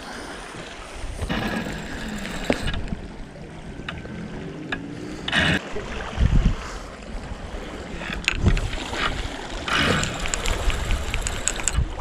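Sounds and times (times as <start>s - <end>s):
fishing reel cranking: 1.3s - 2.9s, 9.7s - 11.8s
wind buffeting microphone: 5.2s - 12.0s.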